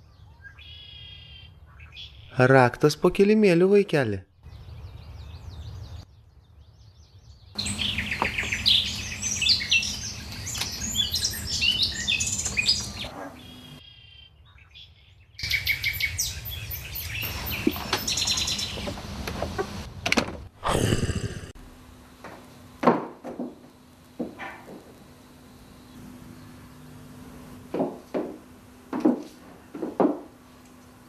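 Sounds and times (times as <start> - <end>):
small birds chirping: 4.4 - 19.0.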